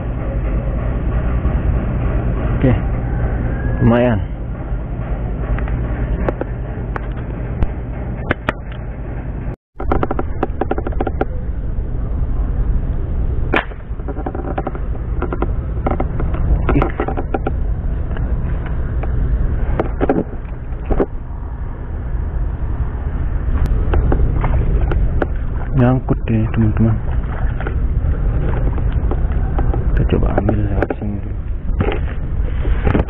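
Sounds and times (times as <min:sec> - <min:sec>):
steady low rumble: 0:00.0 - 0:33.0
loud crack: 0:13.5 - 0:15.4.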